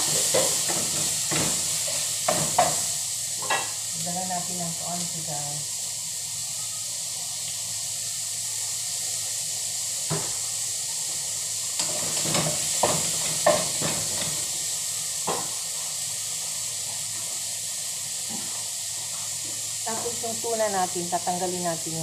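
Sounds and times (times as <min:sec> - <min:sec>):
garlic and onion sizzling in oil: 0:00.0 - 0:22.0.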